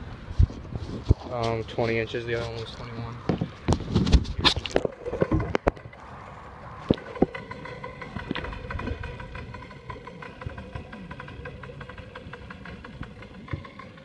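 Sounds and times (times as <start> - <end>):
low underwater rumble: 2.8 - 14.0
faint hum: 4.9 - 14.0.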